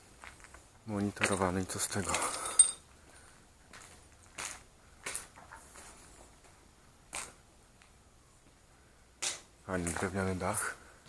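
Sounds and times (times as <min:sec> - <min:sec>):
footsteps crunching on debris: 0:00.0 - 0:07.4, 0:09.3 - 0:10.4.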